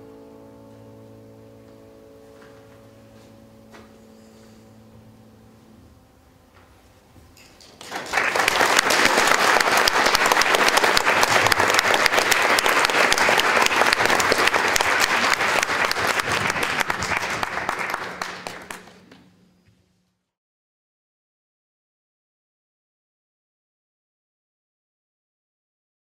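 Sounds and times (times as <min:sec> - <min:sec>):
audience applauding: 0:07.6 - 0:19.3.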